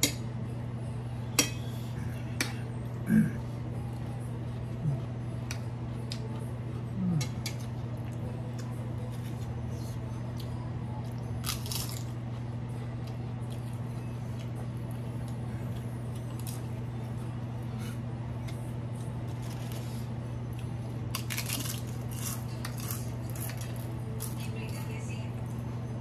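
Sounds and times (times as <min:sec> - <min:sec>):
steady low hum: 0:00.0 - 0:26.0
crunching and chewing crisp papad: 0:03.9 - 0:16.8, 0:18.9 - 0:24.5.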